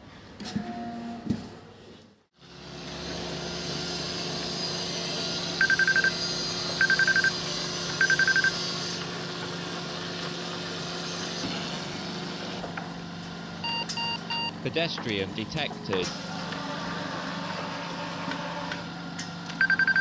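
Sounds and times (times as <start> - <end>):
dozer engine humming: 5.1 - 11.0
rapid high-pitched warning beeps: 5.6 - 6.2, 6.8 - 7.4, 8.0 - 8.6, 19.6 - 20.0.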